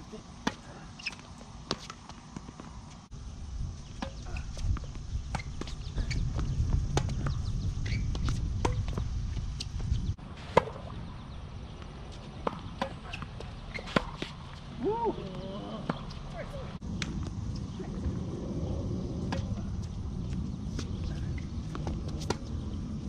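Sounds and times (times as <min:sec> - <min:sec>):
tennis ball struck by rackets: 0:10.5 - 0:10.9, 0:12.4 - 0:14.5, 0:21.7 - 0:22.6
low rumble: 0:16.8 - 0:23.0.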